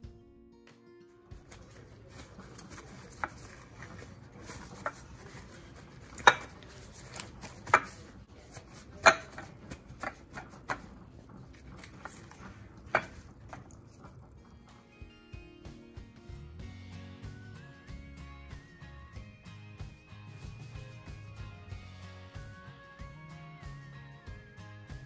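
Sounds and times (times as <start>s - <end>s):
faint paper rustling: 1.4s - 14.4s.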